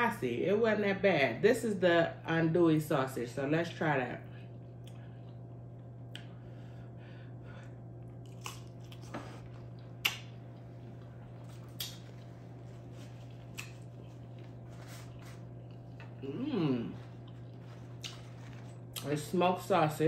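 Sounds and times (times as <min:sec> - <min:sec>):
steady low hum: 0:00.0 - 0:20.0
person chewing sausage: 0:08.0 - 0:19.0.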